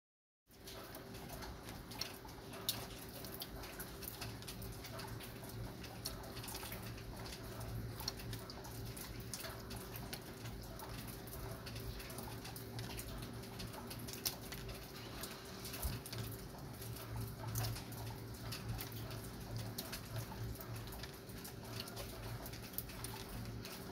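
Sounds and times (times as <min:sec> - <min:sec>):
light rain pattering: 0:00.5 - 0:23.9.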